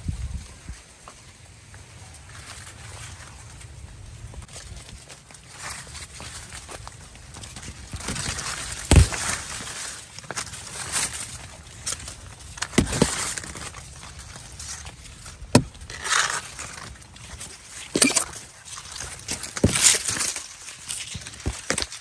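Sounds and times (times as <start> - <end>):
corn leaves rustling: 0.0 - 22.0
sharp knocks: 8.9 - 9.4.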